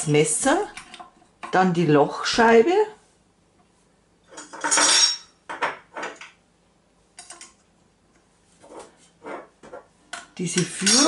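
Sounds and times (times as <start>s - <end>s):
metal parts clattering and clicking: 4.3s - 5.2s.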